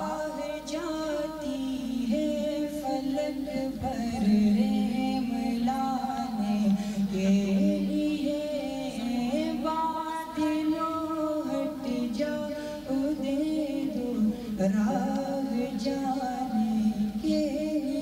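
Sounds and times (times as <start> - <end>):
man singing into a microphone: 0.0 - 18.0.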